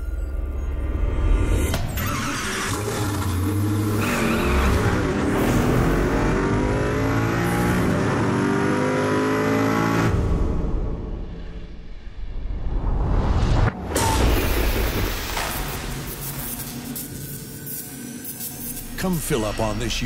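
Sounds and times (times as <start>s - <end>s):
sports car engine revving: 2.5s - 11.0s.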